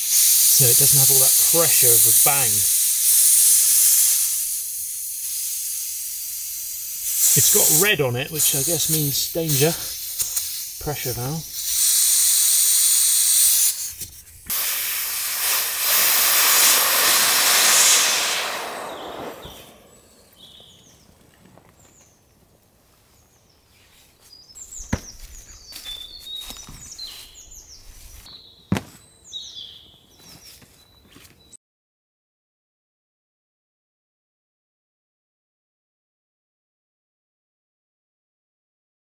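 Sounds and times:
air hissing out of valve: 0.0s - 20.4s
small birds chirping: 6.4s - 14.3s, 18.4s - 31.6s.

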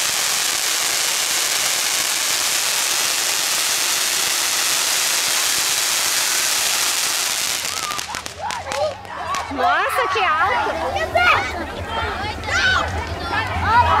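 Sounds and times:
firework fountain hissing: 0.0s - 10.2s.

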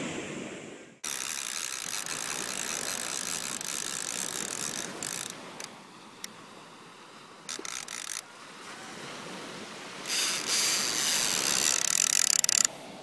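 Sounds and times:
fishing reel gears whirring: 1.0s - 6.3s, 7.4s - 8.2s, 10.0s - 12.8s.

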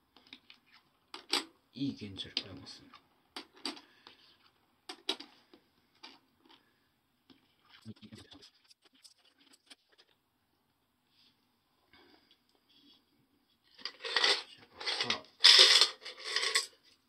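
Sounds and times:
coins clinking on wooden table: 13.8s - 16.7s.

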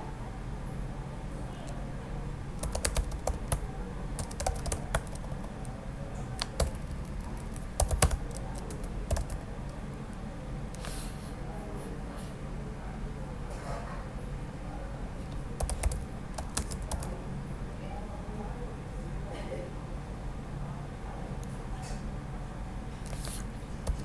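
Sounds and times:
faint low hum: 0.0s - 13.5s, 14.1s - 24.0s
keyboard key clicks: 6.4s - 9.4s.

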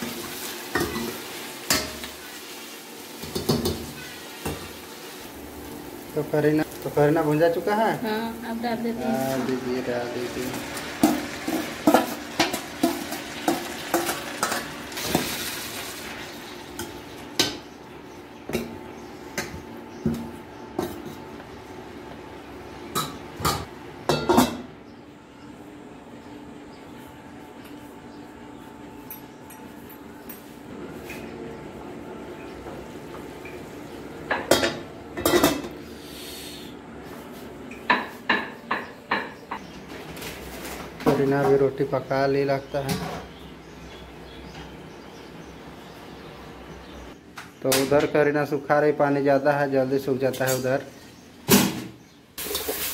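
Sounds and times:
metal cookware clinking: 0.0s - 2.2s, 10.5s - 15.4s, 23.0s - 24.6s
greens sizzling in hot oil: 0.0s - 16.6s, 52.4s - 52.9s.

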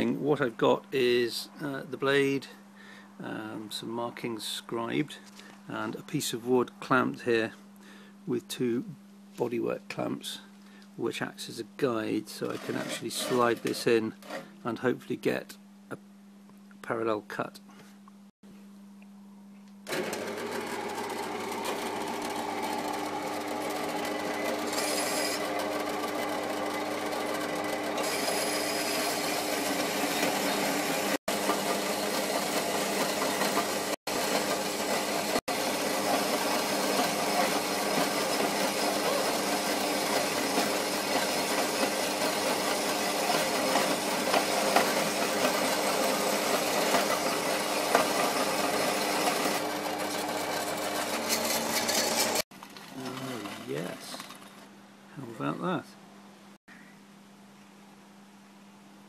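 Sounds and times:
bandsaw blade rasping: 12.4s - 14.5s, 21.5s - 26.1s, 26.7s - 52.4s
bandsaw motor hum: 12.4s - 14.5s, 19.8s - 54.7s.

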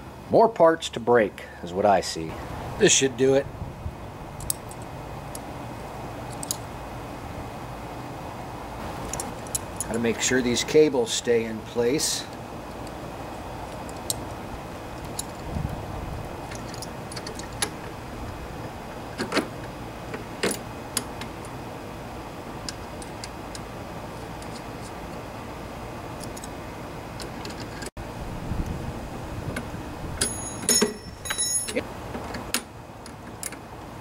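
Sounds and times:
metal wrenches clinking: 30.2s - 31.8s.

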